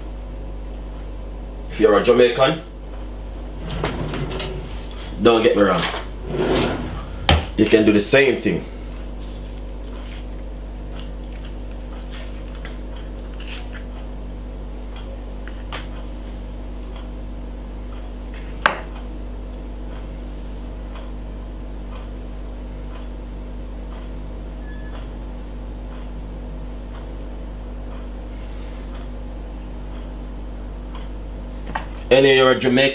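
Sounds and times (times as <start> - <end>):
low electrical hum: 0.0 - 32.9.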